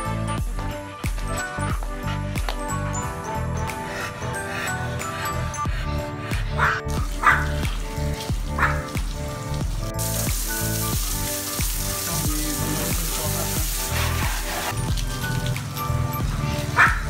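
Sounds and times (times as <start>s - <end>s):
background music: 0.0s - 17.0s
hose water spraying: 5.2s - 17.0s.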